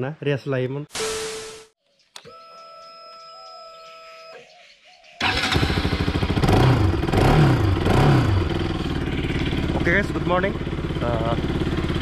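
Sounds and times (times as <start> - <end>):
motorcycle engine revving: 5.2 - 12.0.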